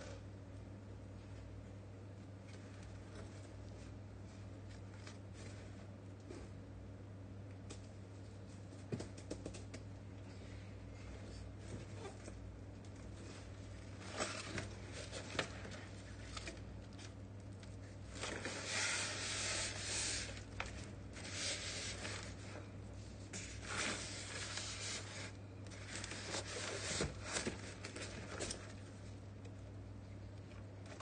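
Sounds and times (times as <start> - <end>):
steady low hum: 0.0 - 31.0
cardboard and foam rustling: 11.6 - 29.2.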